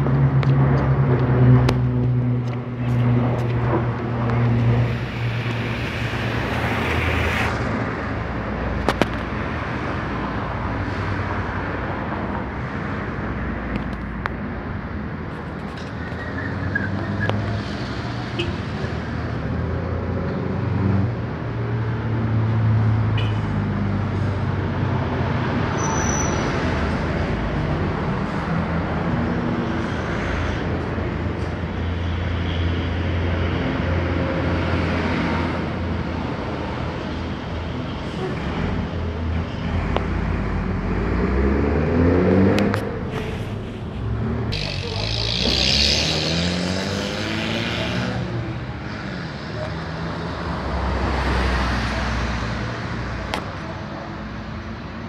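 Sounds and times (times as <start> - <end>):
aircraft drone overhead: 0.0 - 8.5
street traffic noise: 0.0 - 55.0.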